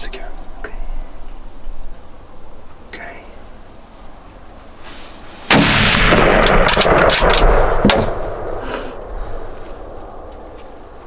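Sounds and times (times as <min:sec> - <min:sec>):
gunshot: 0:05.5 - 0:08.7.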